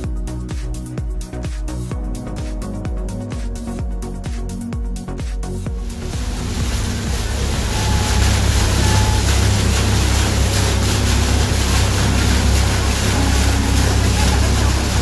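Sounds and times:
low rumble: 5.7 - 15.0
water rushing and splashing: 5.7 - 15.0.

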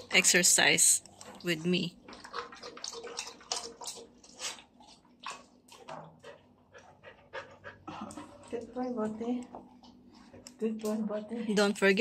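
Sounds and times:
dog lapping water: 0.0 - 9.1.

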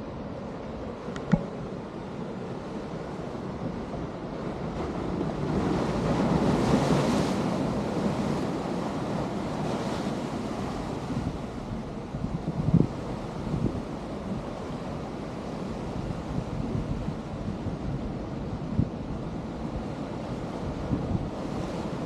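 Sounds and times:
wind buffeting microphone: 0.9 - 22.0.

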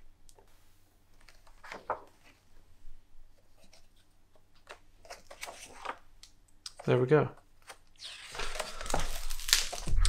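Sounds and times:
book pages turning: 1.2 - 2.4, 3.4 - 6.1, 7.6 - 10.0.

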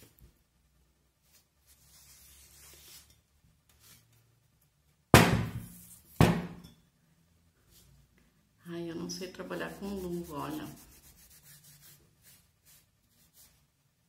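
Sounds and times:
cloth rubbing: 1.2 - 3.1, 9.7 - 13.7.

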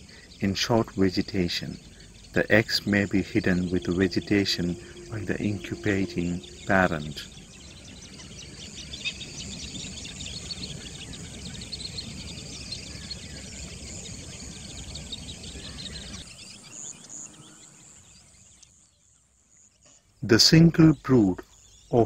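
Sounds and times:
insects chirping: 0.0 - 22.0.

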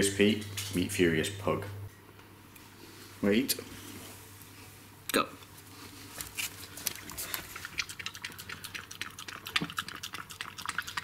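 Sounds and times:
dog lapping from plastic bowl: 7.0 - 11.0.

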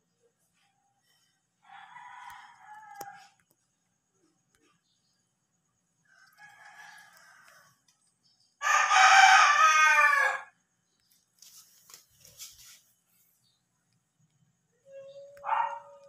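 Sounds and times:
rooster crowing: 1.6 - 3.4, 6.1 - 7.8, 8.6 - 10.6.

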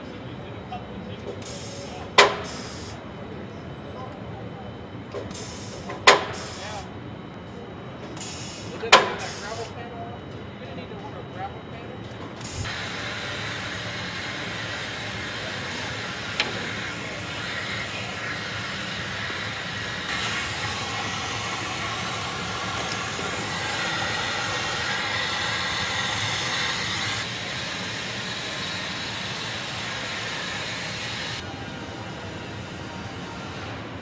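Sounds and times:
steady hissing air: 12.5 - 31.4.

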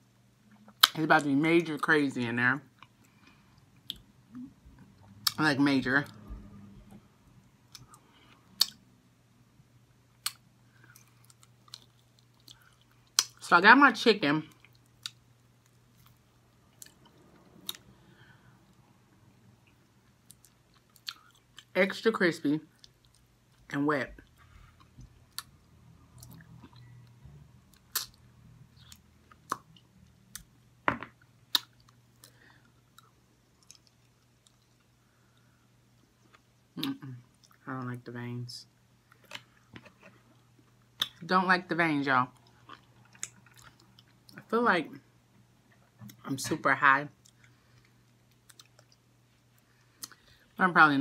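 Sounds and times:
faint low hum: 0.0 - 51.0
soft chewing: 2.7 - 5.4, 7.6 - 8.8, 10.2 - 13.4, 14.5 - 21.7, 22.7 - 37.9, 42.3 - 44.5, 47.2 - 50.6
wet mouth clicks while chewing: 27.8 - 28.2.

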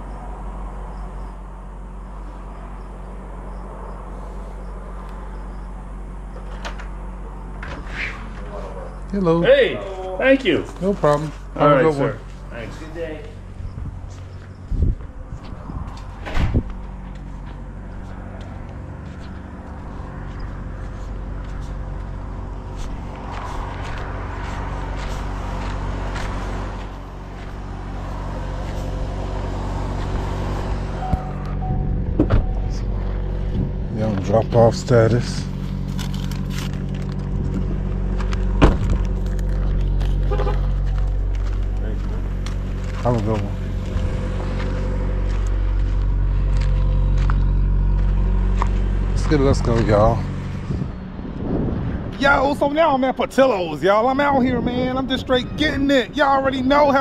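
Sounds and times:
faint insect chirps: 0.0 - 8.0
vehicle engine humming: 0.0 - 57.0
footsteps on concrete: 12.2 - 29.0, 36.8 - 50.8.

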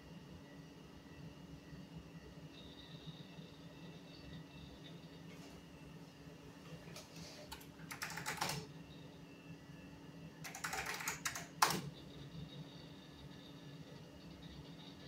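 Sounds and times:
steady low hum: 0.0 - 15.0
typing on computer keyboard: 7.5 - 8.7, 10.4 - 11.9.

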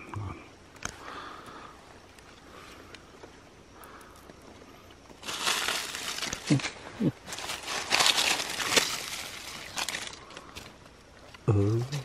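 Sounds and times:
dry leaves rustling and crackling: 5.1 - 12.0.

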